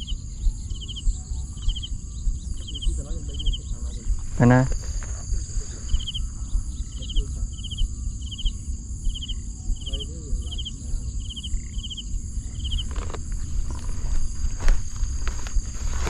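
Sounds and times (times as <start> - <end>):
high-pitched insect drone: 0.0 - 16.0
insects trilled chirping: 0.0 - 16.0
low rumble: 0.0 - 16.0
rustling clicks: 12.8 - 16.0.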